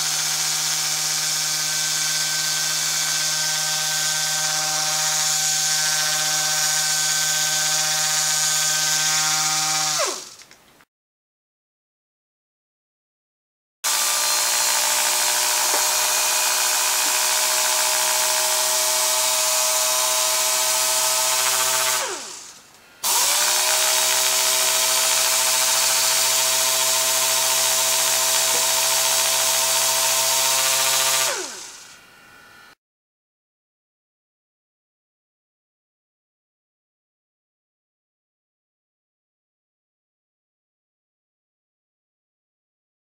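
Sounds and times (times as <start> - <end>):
air sander whining: 0.0 - 10.4, 13.9 - 32.8.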